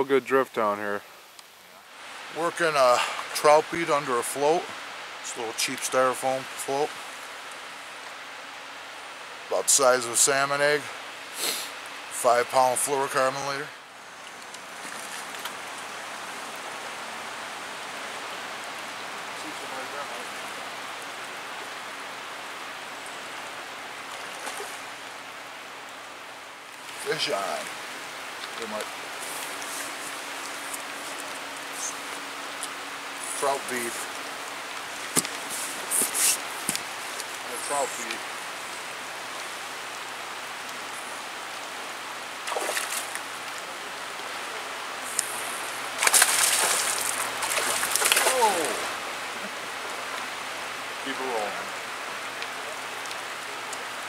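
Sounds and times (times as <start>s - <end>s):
creek water running over rocks: 0.0s - 54.0s
fish thrashing and splashing: 42.4s - 43.3s, 46.0s - 48.9s.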